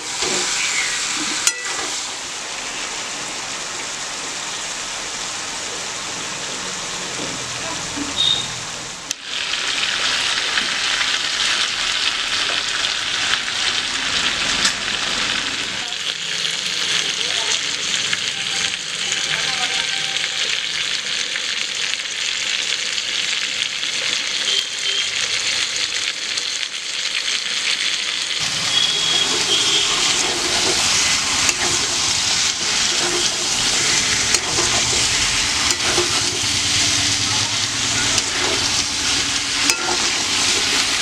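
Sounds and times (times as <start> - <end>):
curry sizzling in oil: 0.0 - 41.0
metal spatula scraping pan: 28.5 - 36.9, 38.2 - 41.0.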